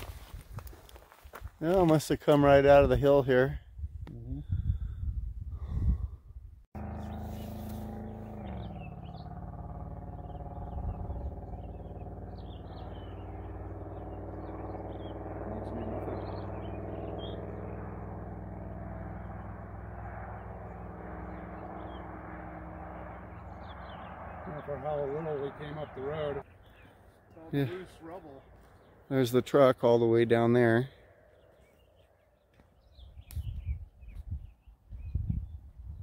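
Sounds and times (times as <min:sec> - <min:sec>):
engine drone: 0:06.8 - 0:29.2
small birds chirping: 0:06.8 - 0:36.0.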